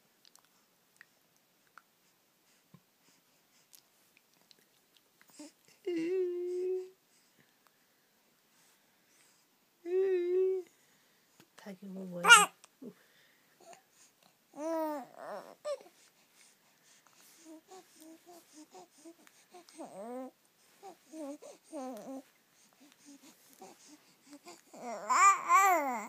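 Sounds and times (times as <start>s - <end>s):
baby cooing: 12.2s - 12.6s, 14.5s - 15.9s, 17.4s - 22.2s, 23.0s - 26.0s.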